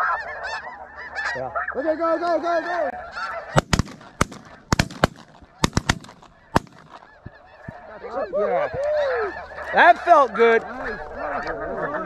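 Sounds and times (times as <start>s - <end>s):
geese calling: 0.0s - 12.0s
shotgun shots: 3.6s - 7.0s.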